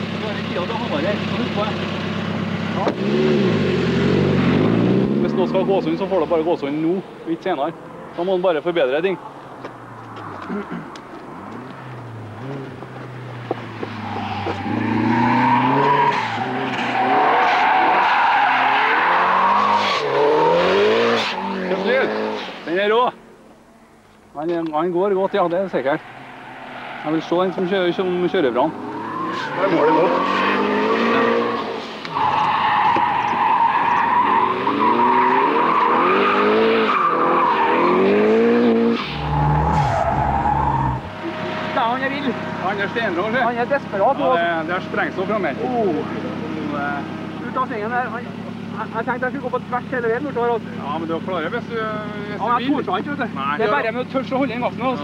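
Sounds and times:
car engine revving: 0.0s - 6.5s, 9.8s - 22.7s, 25.3s - 54.9s
tyres squealing: 11.4s - 22.6s, 25.4s - 42.6s.

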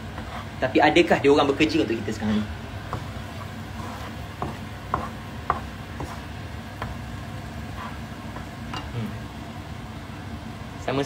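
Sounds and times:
low frying sizzle: 0.0s - 11.0s.

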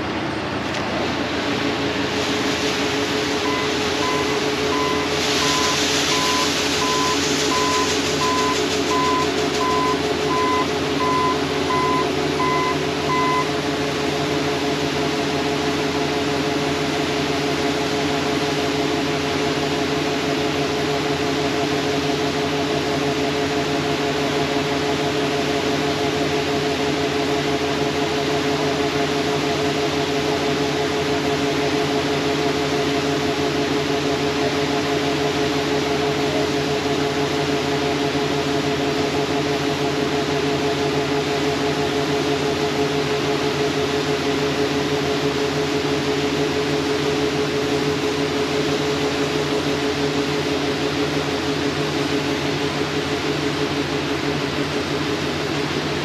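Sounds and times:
combine harvester engine: 0.0s - 56.0s
tractor engine: 0.0s - 56.0s
grain pouring into cart: 2.1s - 10.3s
beeping alarm: 3.4s - 13.5s.

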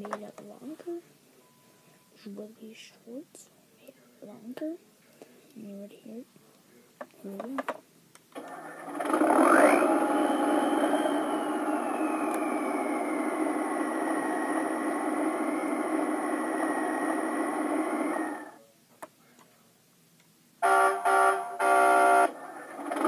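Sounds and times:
toy speaker diesel engine sound: 8.4s - 18.6s, 20.6s - 23.0s
electronic horn tone bursts: 20.6s - 22.4s.

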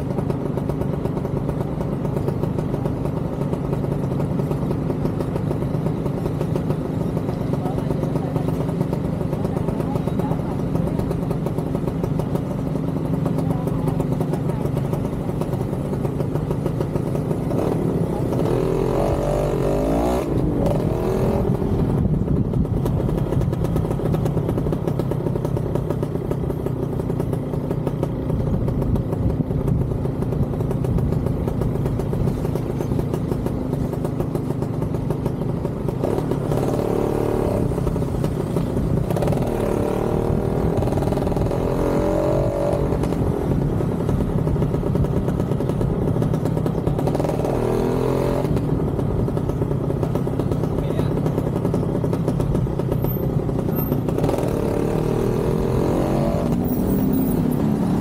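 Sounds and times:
motorcycle engine running: 0.0s - 58.0s
low wind rumble: 20.5s - 24.0s.

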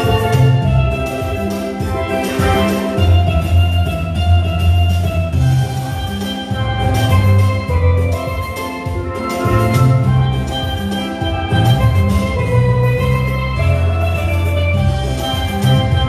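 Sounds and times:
drum kit: 0.0s - 16.0s
low bass line: 0.0s - 16.0s
steelpan gospel melody: 0.0s - 16.0s.

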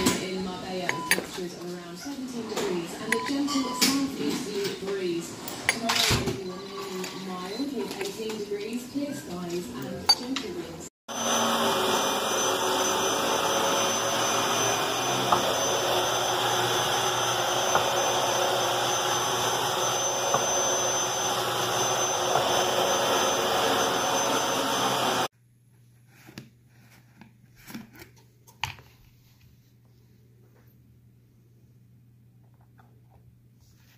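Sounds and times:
vacuum cleaner running over carpet: 11.1s - 25.3s.

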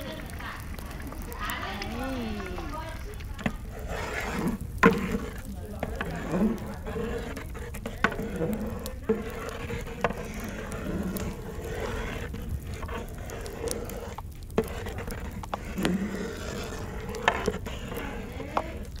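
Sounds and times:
metal paddle stirring and scraping pot: 0.0s - 19.0s.

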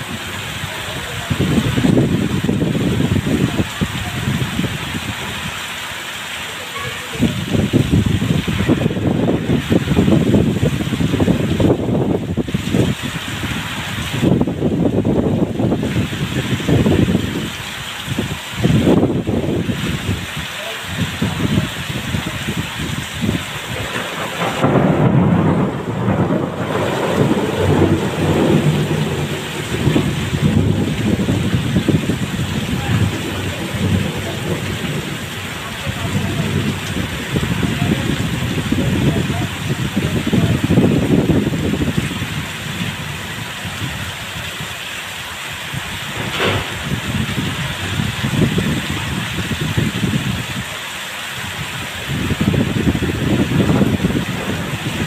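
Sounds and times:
heavy rain pouring: 0.0s - 55.0s
low rumbling: 21.0s - 44.4s, 45.7s - 50.5s, 52.0s - 55.0s
sharp crackle: 46.1s - 47.1s.

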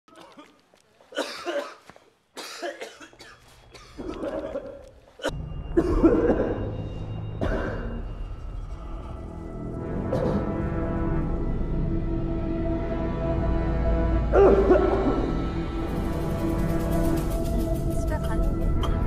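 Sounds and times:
person coughing: 0.1s - 6.7s, 7.4s - 8.1s, 10.1s - 10.6s
low dark music drone: 5.3s - 19.0s.

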